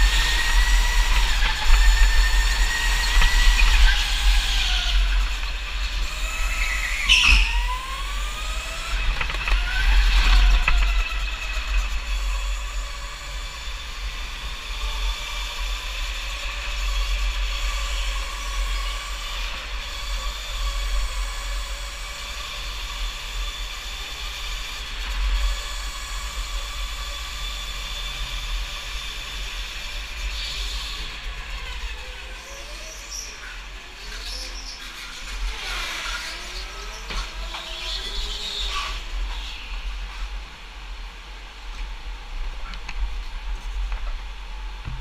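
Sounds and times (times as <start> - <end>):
go-kart motor whining: 0.0 - 41.2
other karts' motors: 0.0 - 45.0.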